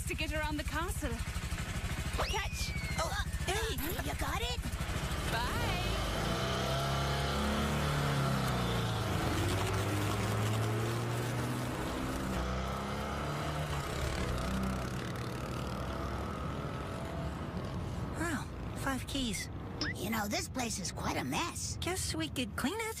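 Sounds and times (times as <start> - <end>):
motor scooter engine pulling away: 1.2 - 18.1.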